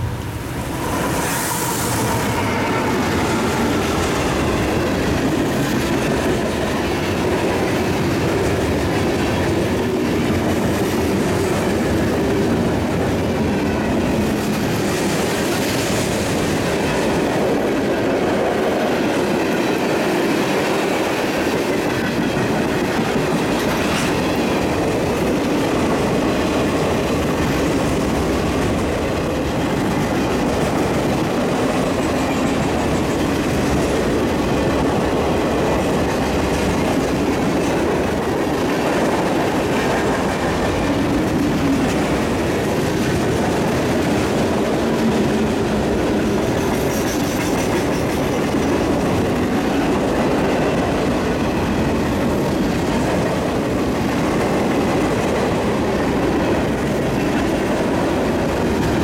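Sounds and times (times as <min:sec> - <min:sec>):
freight train wheels rumbling on rail: 0:00.0 - 0:59.0
clickety-clack over rail joints: 0:02.2 - 0:59.0.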